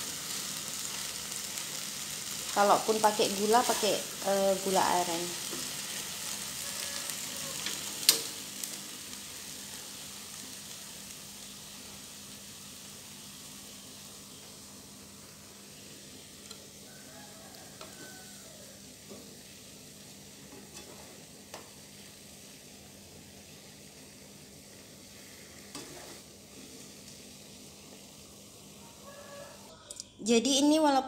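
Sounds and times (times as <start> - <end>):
food sizzling in a wok: 0.0 - 29.9.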